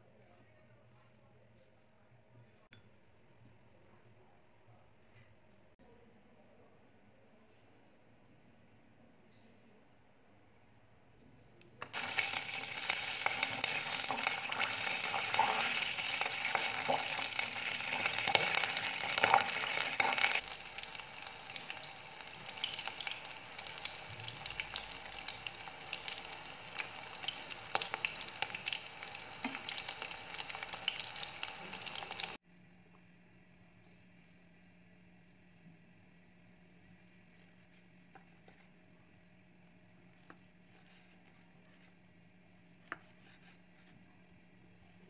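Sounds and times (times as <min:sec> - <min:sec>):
food deep-frying in oil: 0:11.8 - 0:32.4.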